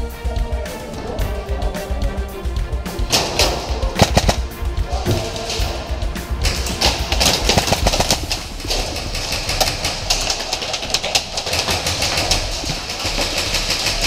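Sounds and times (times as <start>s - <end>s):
airsoft guns firing: 3.1s - 5.8s, 6.4s - 14.0s.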